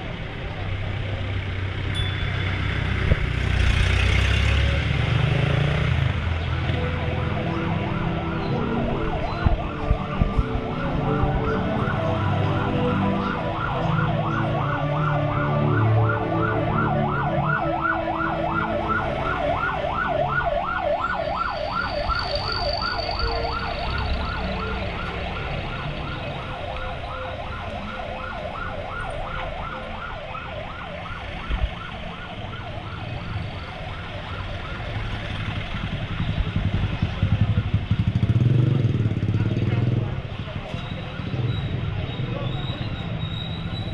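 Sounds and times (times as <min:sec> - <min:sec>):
road traffic rumble: 0:00.0 - 0:43.9
siren yelping: 0:06.5 - 0:35.6.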